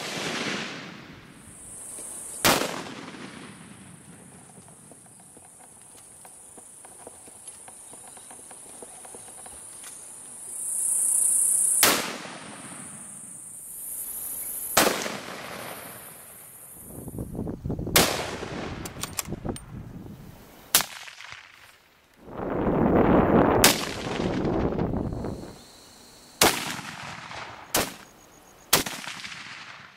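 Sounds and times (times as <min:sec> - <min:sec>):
insects buzzing: 0:00.7 - 0:03.1, 0:03.8 - 0:20.8, 0:21.6 - 0:29.5
rifle shots: 0:02.4 - 0:04.0, 0:14.8 - 0:15.8, 0:18.0 - 0:19.2, 0:20.7 - 0:21.6, 0:23.6 - 0:24.6, 0:26.4 - 0:28.1, 0:28.7 - 0:29.9.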